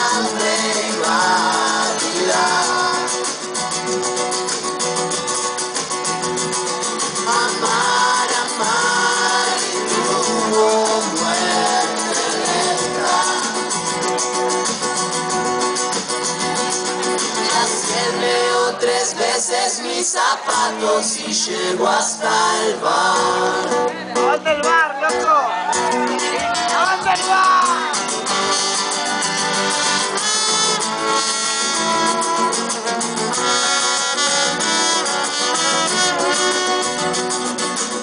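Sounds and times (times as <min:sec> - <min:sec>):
people singing together: 0:00.0 - 0:03.8, 0:06.8 - 0:14.8, 0:16.3 - 0:24.1
strummed acoustic guitars: 0:00.0 - 0:38.0.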